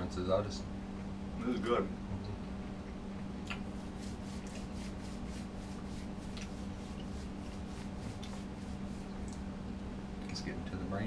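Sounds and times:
steady low hum: 0.0 - 11.0
rubbing sounds: 3.6 - 9.3.

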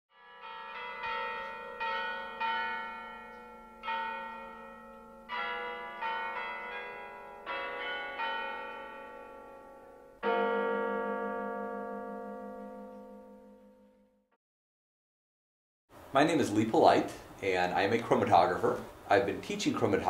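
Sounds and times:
tuned bells playing slow tune: 0.2 - 14.2.

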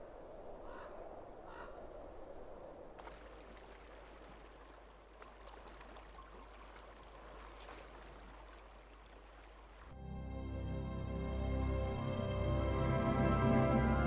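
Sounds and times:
light water drips: 2.5 - 10.0
water trickling: 3.0 - 10.0.

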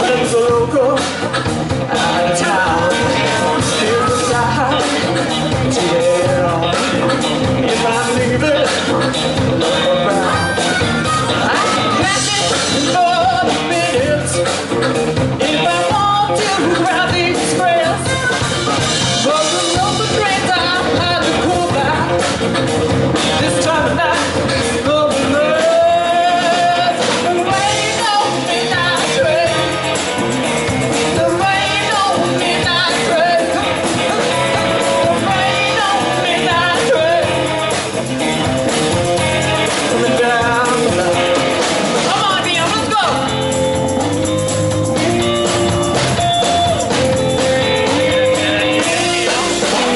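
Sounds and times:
man singing along: 0.0 - 43.6, 44.8 - 49.9
bass guitar: 0.0 - 49.9
electric guitar: 0.0 - 49.9
woman singing lead vocal: 1.8 - 8.8, 9.6 - 14.5, 15.4 - 22.3, 23.4 - 29.9, 31.1 - 37.8.

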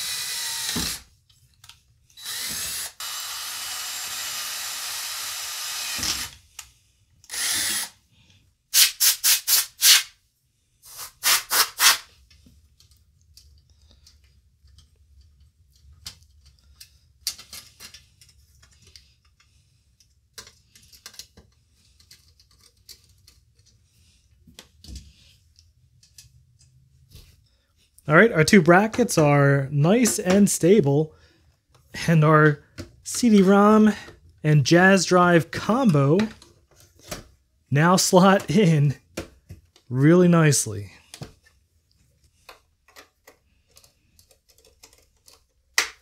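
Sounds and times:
cordless drill boring metal: 0.0 - 1.1, 2.2 - 6.4, 7.2 - 8.0
aerosol spray can bursts: 8.7 - 10.1, 10.9 - 12.1
small screws and brackets clicking: 12.8 - 23.8, 42.5 - 45.8.

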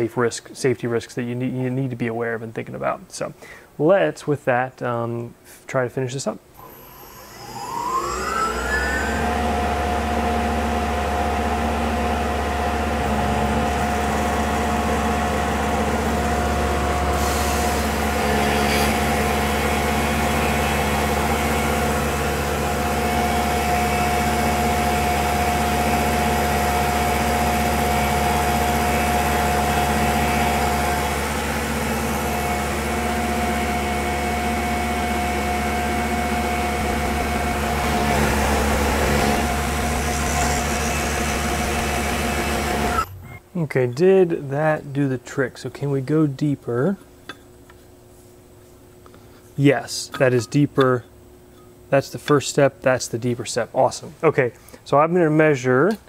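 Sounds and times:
end mill cutting: 6.6 - 43.2
milling machine spindle whine: 6.6 - 43.4.

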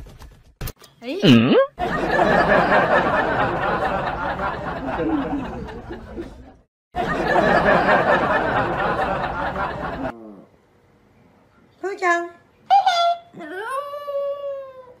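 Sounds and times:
crowd laughter and chatter: 1.8 - 10.1.

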